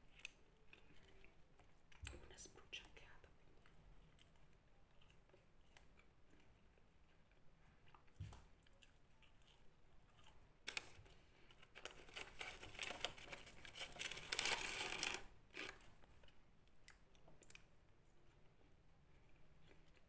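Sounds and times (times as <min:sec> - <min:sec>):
paper wrapper crinkling: 0:10.6 - 0:15.9.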